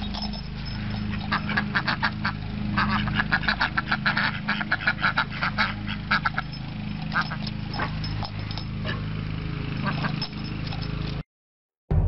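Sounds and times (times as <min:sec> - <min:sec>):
ducks quacking: 0:00.6 - 0:08.0, 0:09.8 - 0:10.2.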